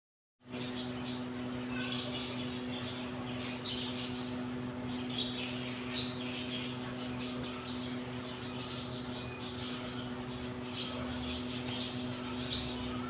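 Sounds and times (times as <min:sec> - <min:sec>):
steady low hum: 0:00.4 - 0:13.0
small animals chirping: 0:00.6 - 0:13.0.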